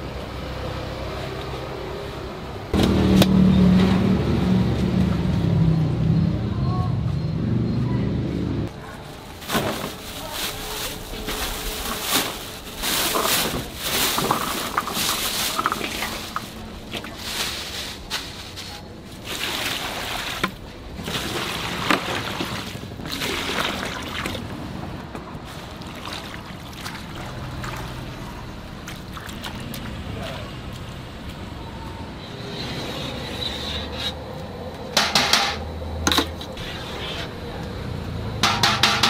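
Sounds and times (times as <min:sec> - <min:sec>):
leaves sloshing in water: 0:09.3 - 0:24.7, 0:25.4 - 0:30.5.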